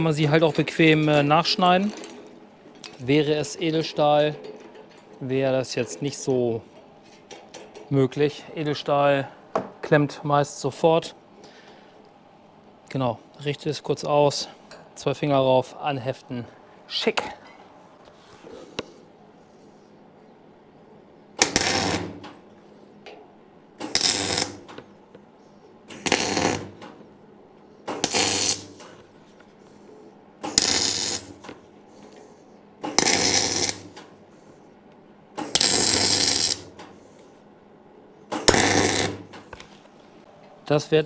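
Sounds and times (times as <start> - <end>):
welder crackling bursts: 21.4 - 22.2, 23.8 - 24.7, 25.9 - 26.7, 27.9 - 28.8, 30.4 - 31.4, 32.8 - 34.0, 35.4 - 36.7, 38.4 - 39.3.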